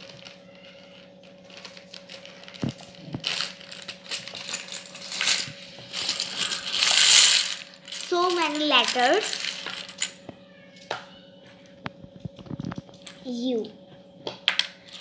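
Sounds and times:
plastic bag crinkling: 0:00.0 - 0:10.2
faint steady hum: 0:00.0 - 0:15.0.

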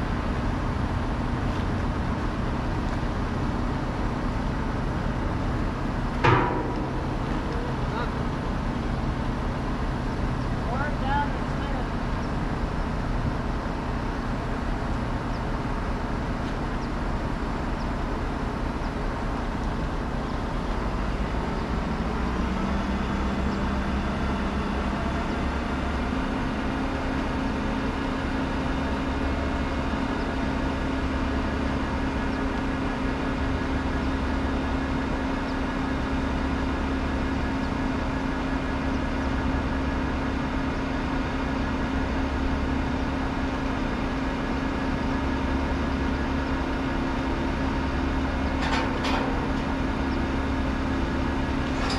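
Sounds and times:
steady hum: 0:00.0 - 0:20.6
truck engine running: 0:00.0 - 0:51.9.

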